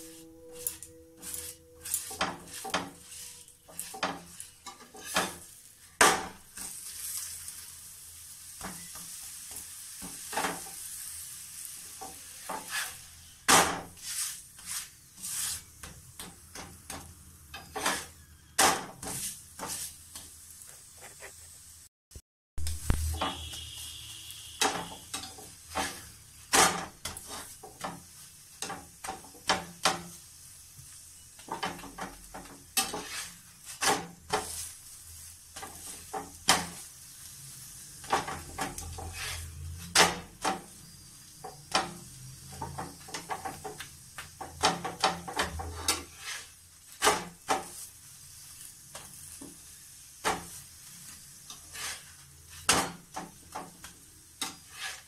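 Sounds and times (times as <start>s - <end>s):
spatula scraping and tapping pan: 0.0s - 7.6s, 8.5s - 11.0s, 11.8s - 21.5s, 22.8s - 37.2s, 38.0s - 55.0s
flatbread sizzling in oil: 0.0s - 21.9s, 22.6s - 55.0s.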